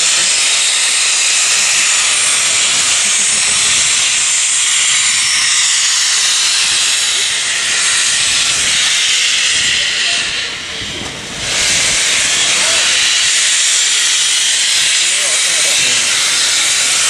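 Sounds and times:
steam locomotive hissing steam: 0:00.0 - 0:17.0.

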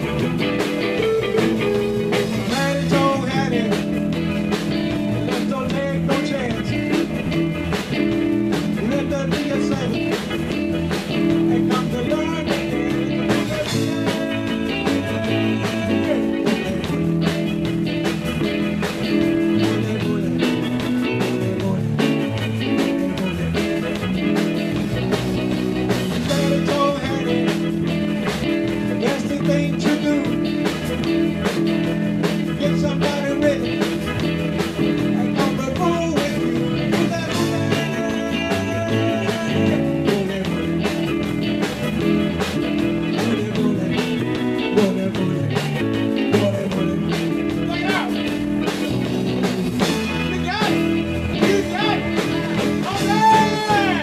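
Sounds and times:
bass guitar: 0:00.0 - 0:54.0
drum kit beat: 0:00.0 - 0:54.0
electric guitars: 0:00.0 - 0:54.0.

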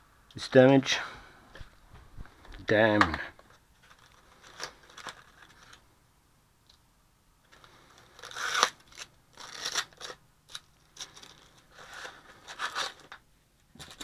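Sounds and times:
scraping rustling handling noise: 0:01.6 - 0:05.9, 0:07.5 - 0:14.0.

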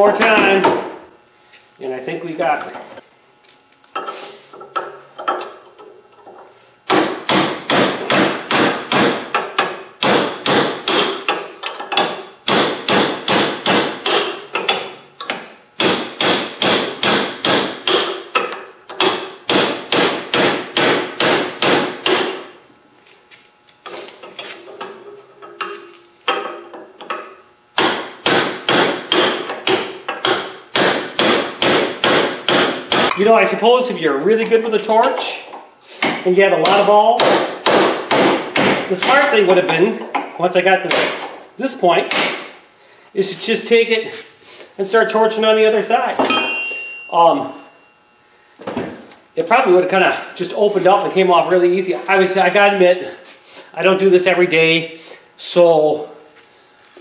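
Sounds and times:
hammer striking chisel on metal: 0:06.9 - 0:14.8, 0:15.8 - 0:22.4, 0:25.6 - 0:33.2, 0:36.0 - 0:39.3, 0:42.1 - 0:42.5, 0:46.2 - 0:47.3.

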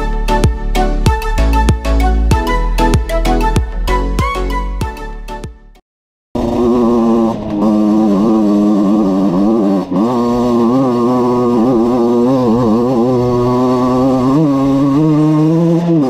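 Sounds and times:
small two-stroke engine revving: 0:06.4 - 0:16.0.

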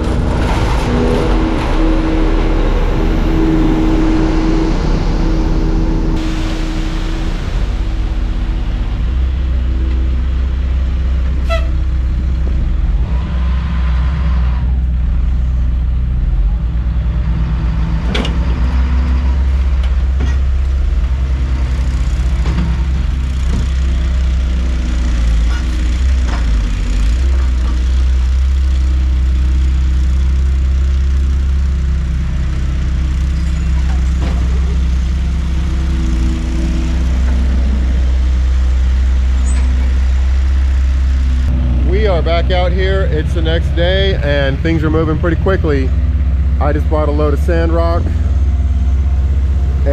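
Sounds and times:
truck engine running: 0:00.0 - 0:49.9.

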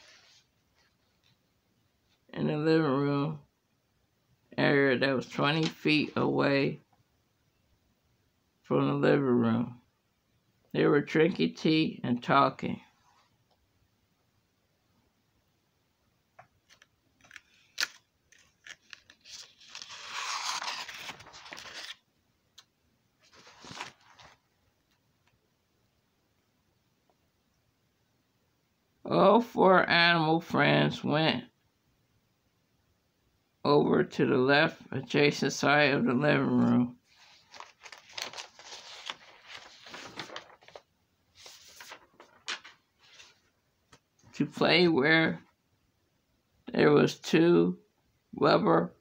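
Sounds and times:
paper page rustling: 0:16.6 - 0:22.0, 0:22.6 - 0:24.6, 0:37.0 - 0:44.0.

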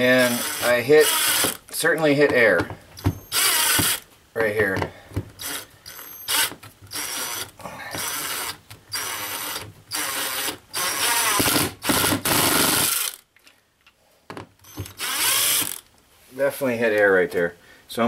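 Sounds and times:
cordless drill driving screw: 0:00.2 - 0:01.6, 0:03.0 - 0:04.1, 0:05.4 - 0:13.2, 0:14.6 - 0:15.9.

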